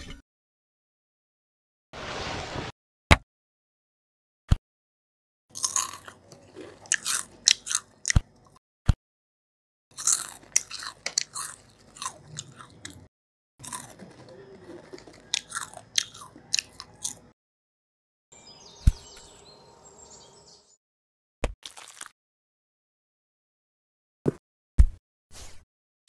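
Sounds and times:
cookies being crunched: 14.9s - 17.2s, 21.6s - 22.1s.

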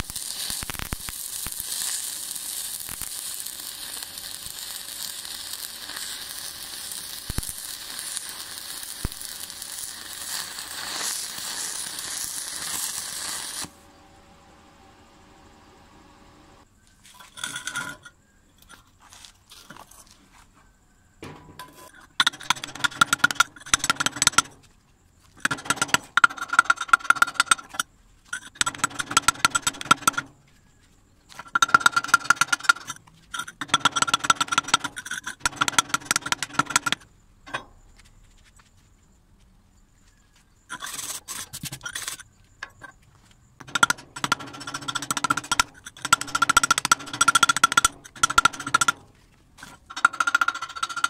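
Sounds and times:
metal tapping and scraping on steel: 17.1s - 19.0s, 21.2s - 30.6s, 31.3s - 37.8s, 43.6s - 51.0s.

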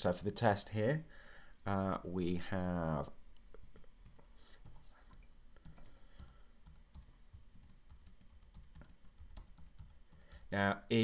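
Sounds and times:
computer keyboard typing: 5.6s - 10.6s.

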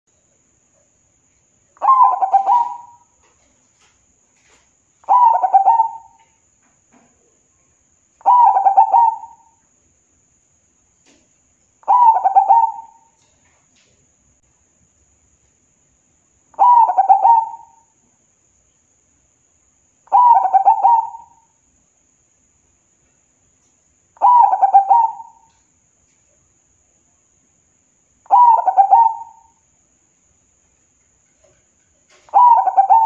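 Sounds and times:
dove cooing: 1.8s - 3.1s, 5.0s - 6.2s, 8.2s - 9.5s, 11.8s - 13.1s, 16.6s - 17.8s, 20.1s - 21.4s, 24.2s - 25.5s, 28.3s - 29.5s, 32.1s - 33.0s.

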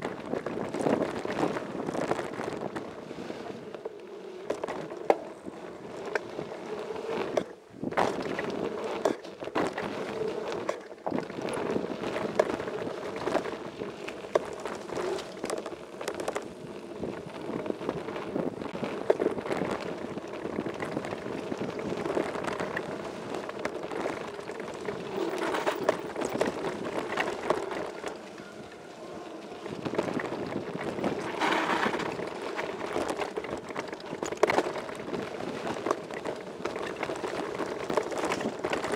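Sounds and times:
bike tyres rumbling on gravel: 0.0s - 38.9s
wind buffeting microphone: 11.0s - 38.9s
bike rattling and knocking: 17.3s - 38.9s.

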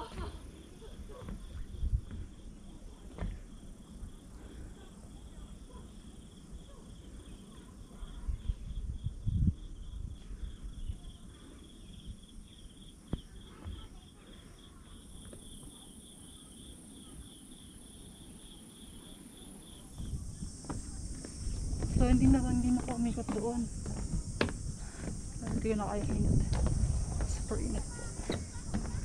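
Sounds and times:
insect chirping: 0.0s - 29.0s
low bumps: 20.0s - 29.0s.

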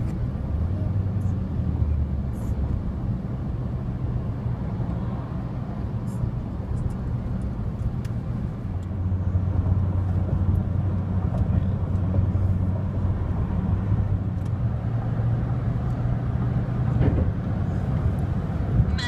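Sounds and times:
car cabin road and engine hum: 0.0s - 19.0s.

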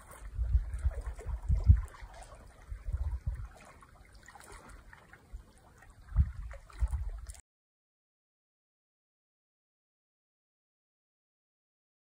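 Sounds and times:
small waves lapping on rocks: 0.0s - 7.4s
wind buffeting microphone: 0.0s - 7.4s.

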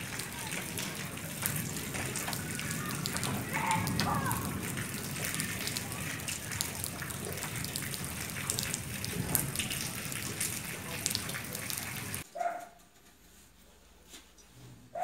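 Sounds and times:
rain pattering: 0.0s - 12.5s
dog yipping: 12.4s - 12.8s.

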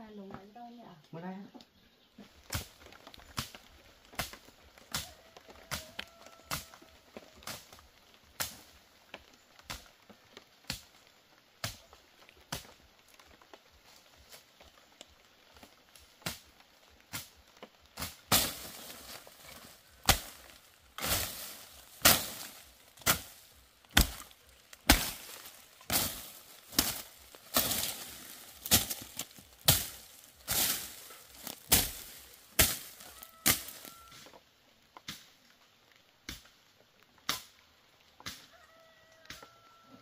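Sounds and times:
machete chopping into ground: 18.0s - 33.9s.

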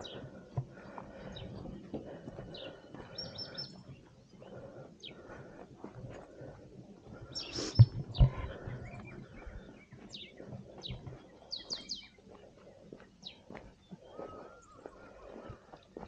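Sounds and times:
birds chirping: 0.0s - 16.0s
dull low thumps: 7.2s - 11.2s.

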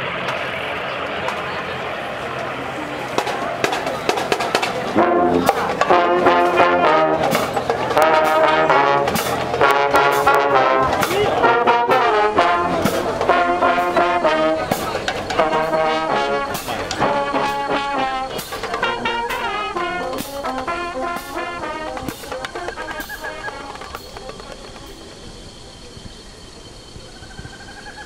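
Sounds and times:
percussion: 3.1s - 26.2s
brass melody: 3.2s - 25.0s.

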